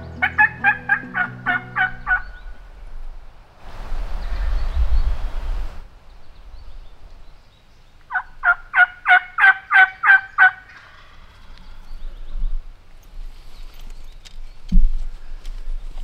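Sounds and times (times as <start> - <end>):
turkey yelping: 0.0 - 2.4, 8.1 - 11.1.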